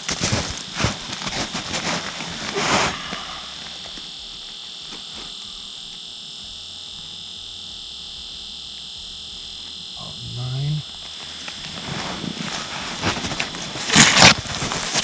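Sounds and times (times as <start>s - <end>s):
rustling of winter clothing: 0.0s - 4.0s, 10.9s - 15.0s
high-pitched whine: 0.0s - 15.0s.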